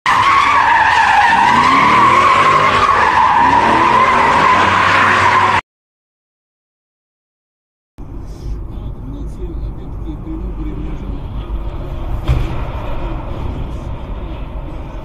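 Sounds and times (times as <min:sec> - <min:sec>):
car engine revving: 0:00.1 - 0:05.6, 0:08.8 - 0:15.0
tyres squealing: 0:00.1 - 0:05.6.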